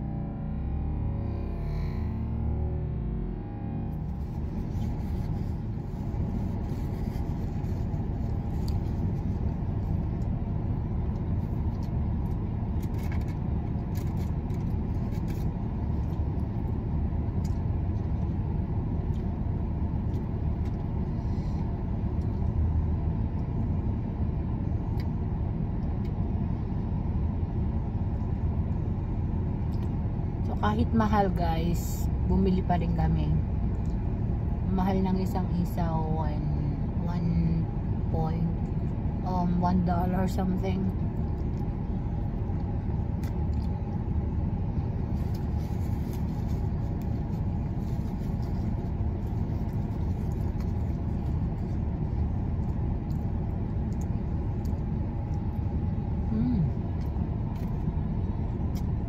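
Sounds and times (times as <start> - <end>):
car engine idling rumble: 0.0 - 59.0.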